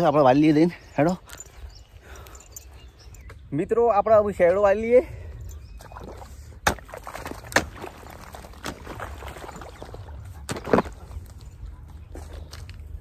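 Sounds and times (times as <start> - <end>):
running irrigation water: 5.6 - 11.2
hoe chopping wet soil: 6.6 - 11.1.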